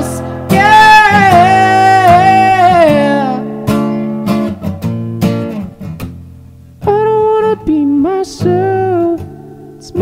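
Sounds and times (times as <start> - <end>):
man singing: 0.0 - 3.6, 6.8 - 10.0
acoustic guitar strumming: 0.0 - 10.0.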